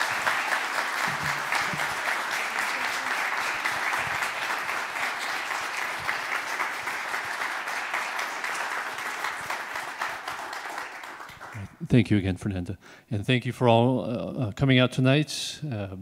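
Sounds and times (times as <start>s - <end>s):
audience applauding: 0.0s - 11.8s.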